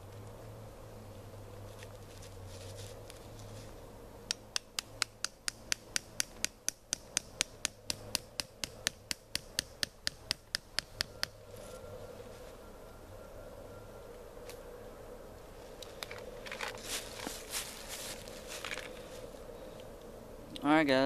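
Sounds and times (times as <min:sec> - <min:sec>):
soft rustling: 0:01.6 - 0:03.8, 0:15.7 - 0:19.4.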